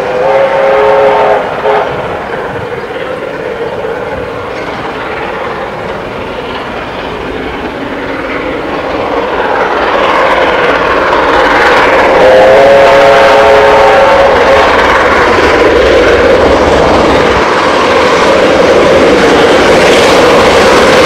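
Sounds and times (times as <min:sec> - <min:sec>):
steam locomotive whistle: 0:00.0 - 0:02.2, 0:12.0 - 0:16.0
steam locomotive working hard: 0:00.0 - 0:21.0.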